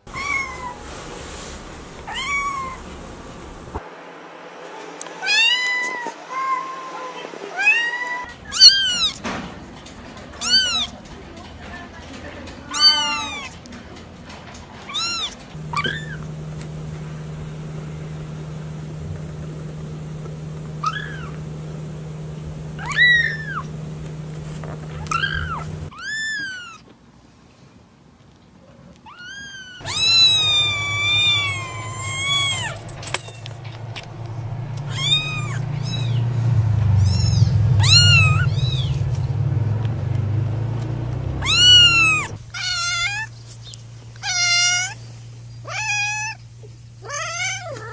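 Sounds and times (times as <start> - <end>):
kittens mewing: 19.6 - 26.8, 29.1 - 33.9, 34.6 - 39.0, 41.3 - 43.4, 44.2 - 45.0
kitten wavering cry: 20.8 - 21.4, 22.8 - 23.7, 25.0 - 26.8, 29.1 - 32.8, 34.9 - 36.2, 41.4 - 43.3, 44.2 - 45.0, 45.6 - 46.4, 47.0 - 47.9.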